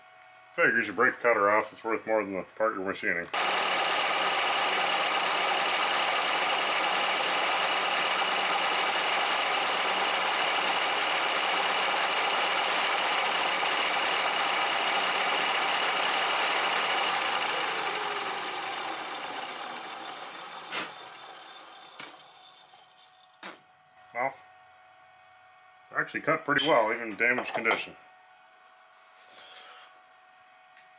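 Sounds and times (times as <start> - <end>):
milling machine chattering: 3.3 - 22.7.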